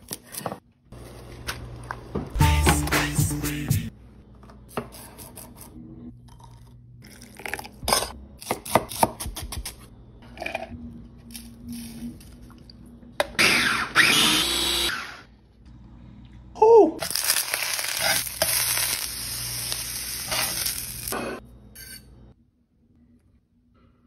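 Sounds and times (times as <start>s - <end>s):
food processor running: 13.4s - 15.2s.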